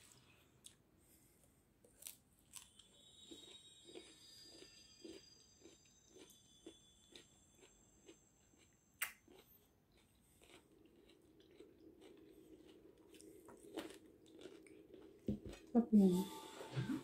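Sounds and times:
faint chewing: 0:00.0 - 0:15.8.

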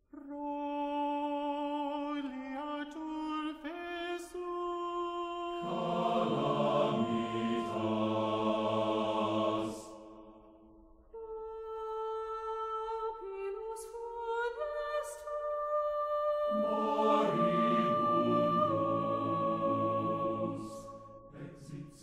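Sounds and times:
wordless chant-like singing: 0:00.1 - 0:22.0
lower voices in choir chord: 0:05.6 - 0:22.0.

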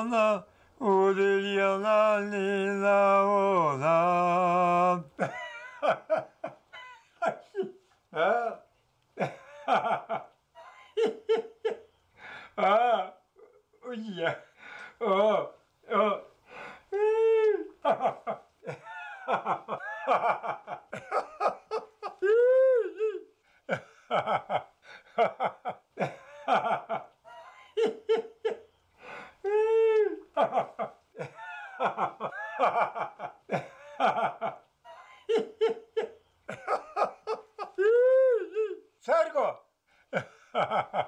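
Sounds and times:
person laughing: 0:05.2 - 0:08.6, 0:09.2 - 0:11.8, 0:16.9 - 0:28.7, 0:29.4 - 0:38.8.

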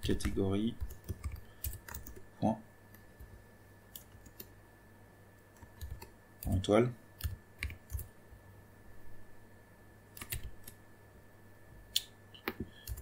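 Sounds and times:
computer keyboard keystrokes: 0:00.1 - 0:02.2, 0:03.9 - 0:04.5, 0:05.5 - 0:06.6, 0:07.2 - 0:08.1, 0:10.1 - 0:10.8, 0:12.4 - 0:13.0.

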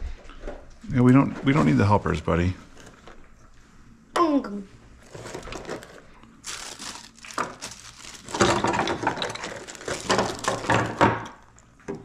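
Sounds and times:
plastic bag crinkling: 0:05.0 - 0:11.6.

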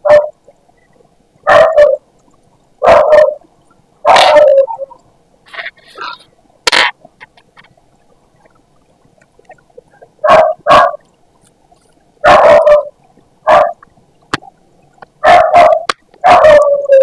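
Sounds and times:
dog barking: 0:00.0 - 0:00.3, 0:01.5 - 0:02.0, 0:02.8 - 0:03.4, 0:04.0 - 0:04.7, 0:10.2 - 0:11.0, 0:12.2 - 0:13.8, 0:15.2 - 0:16.8.

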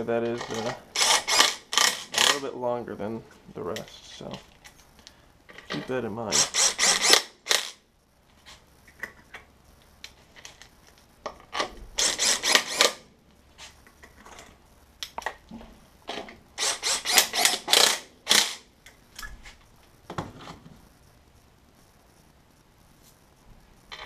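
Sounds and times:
power driver spinning bolts: 0:16.6 - 0:18.6.

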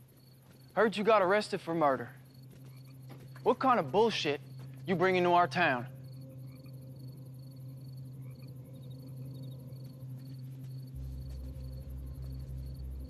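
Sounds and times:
crickets chirping: 0:00.0 - 0:13.0
steady low hum: 0:00.0 - 0:13.0
deep low rumble: 0:08.5 - 0:13.0.

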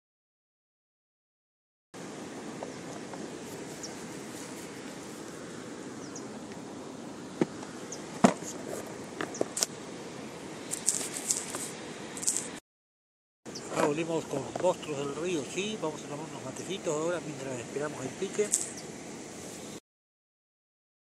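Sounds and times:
camera handling rustle: 0:10.7 - 0:12.6.

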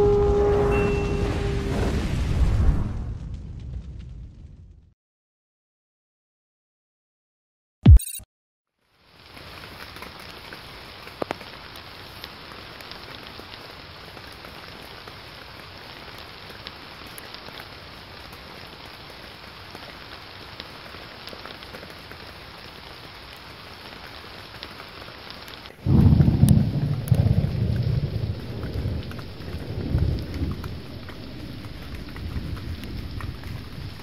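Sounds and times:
steady rain falling: 0:08.8 - 0:34.0
rain drop ticks: 0:09.2 - 0:15.2, 0:16.1 - 0:34.0.

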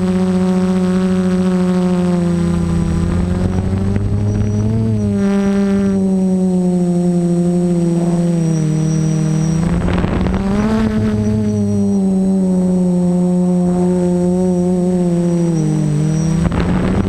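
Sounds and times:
drone propellers humming: 0:00.0 - 0:17.0
wind noise rush: 0:09.4 - 0:11.9, 0:16.2 - 0:17.0.

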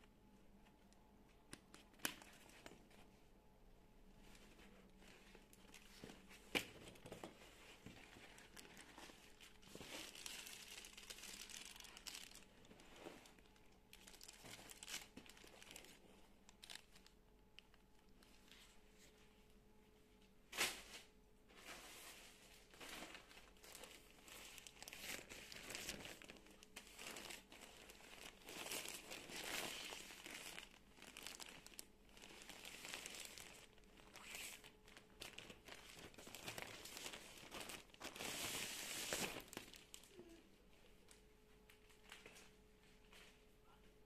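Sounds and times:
plastic bag crinkling: 0:04.5 - 0:18.4, 0:22.6 - 0:40.4.

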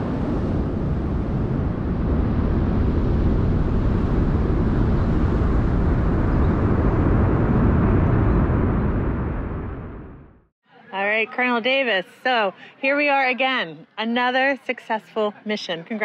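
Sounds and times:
distant rocket engine rumble: 0:00.0 - 0:10.5.

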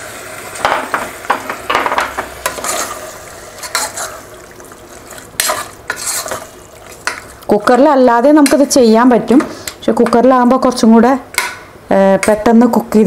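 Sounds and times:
masala sizzling: 0:00.0 - 0:13.0
spoon scraping in pot: 0:02.4 - 0:04.4, 0:05.0 - 0:07.4.

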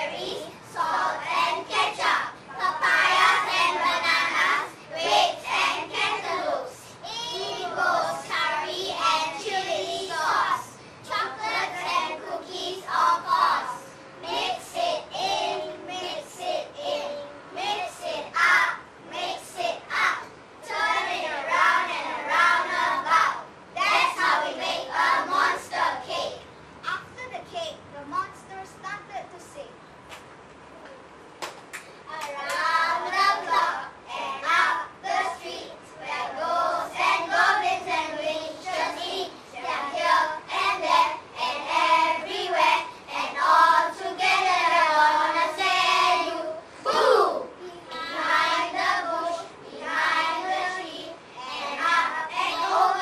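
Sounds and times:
children singing in unison: 0:32.4 - 0:53.0.

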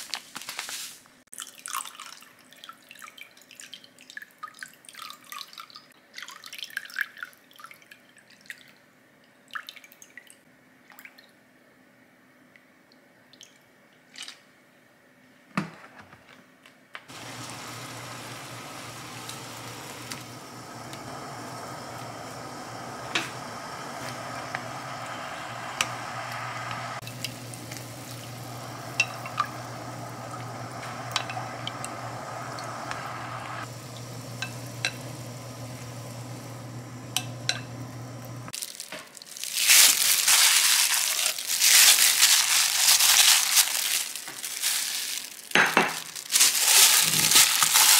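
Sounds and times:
low hum: 0:17.1 - 0:38.5
food sizzling in hot oil: 0:17.1 - 0:47.9
oil popping: 0:17.1 - 0:47.9
loud crinkling: 0:38.5 - 0:47.9.

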